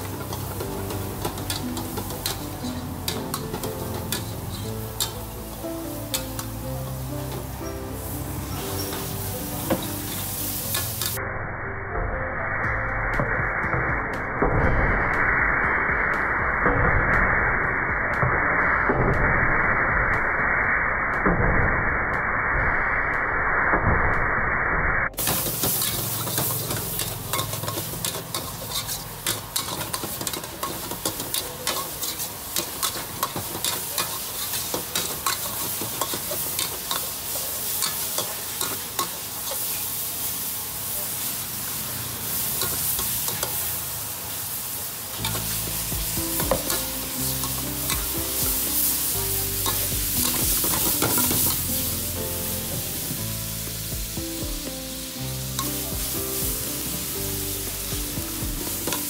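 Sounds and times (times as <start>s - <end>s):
food sizzling in hot oil: 0.0s - 11.2s, 25.2s - 59.0s
metal spatula scraping a wok: 0.1s - 5.2s, 25.2s - 39.9s, 45.2s - 45.6s
background music with bass: 45.2s - 59.0s.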